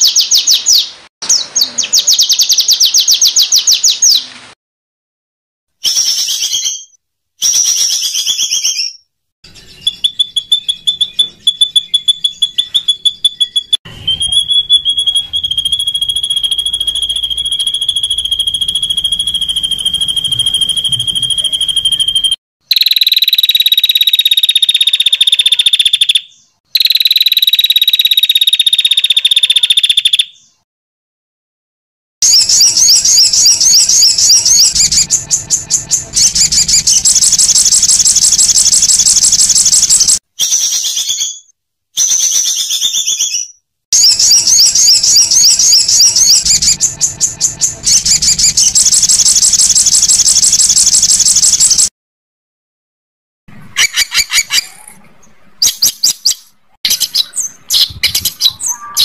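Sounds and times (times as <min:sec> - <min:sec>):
high falling bird trill: 0:05.9 - 0:30.6, 0:32.2 - 0:41.5, 0:42.1 - 0:51.9, 0:55.6 - 0:59.0
fast high bird chattering: 0:32.2 - 0:41.2, 0:55.6 - 0:59.0.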